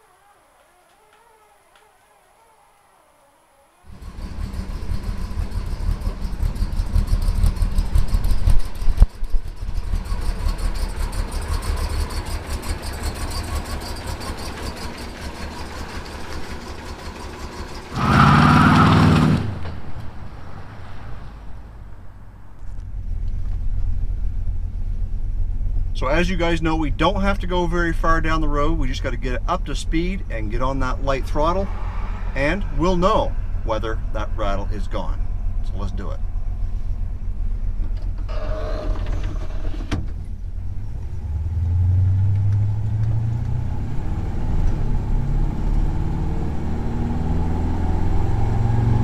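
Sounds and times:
pickup truck engine running: 3.9 - 18.2.

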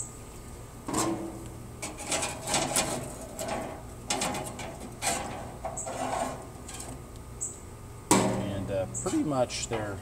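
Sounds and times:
tongs scraping grill grates: 0.9 - 7.2.

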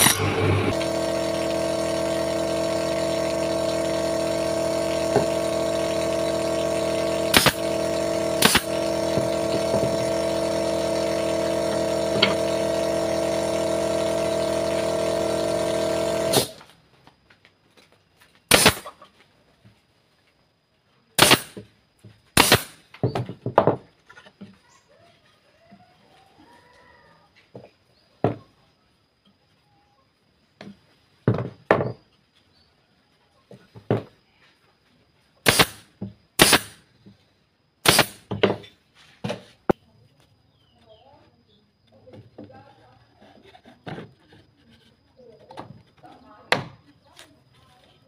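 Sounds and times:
air compressor motor humming: 0.0 - 16.6.

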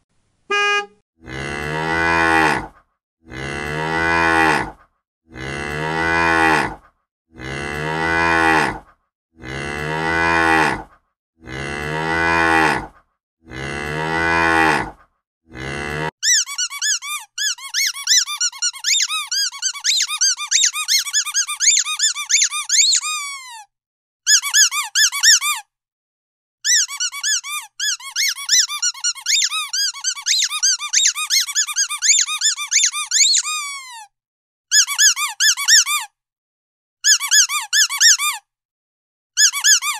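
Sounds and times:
cow mooing: 1.2 - 6.8, 7.4 - 16.1
squeaky dog toy squeaking: 16.2 - 23.7, 24.3 - 25.7, 26.6 - 34.1, 34.7 - 36.2, 37.0 - 38.5, 39.4 - 39.9.

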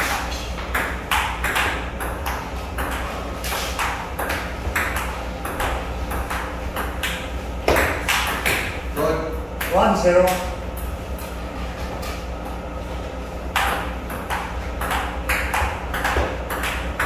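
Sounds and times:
ping pong ball clicking off paddles: 0.0 - 8.8, 13.5 - 17.0
steady low hum: 0.0 - 17.0
ball bouncing on table: 0.7 - 8.8, 13.5 - 17.0.

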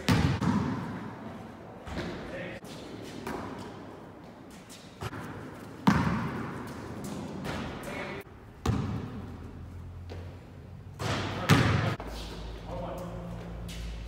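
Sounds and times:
basketball bouncing on hard court: 0.0 - 1.0, 5.0 - 7.8, 8.6 - 9.4, 11.0 - 12.0.

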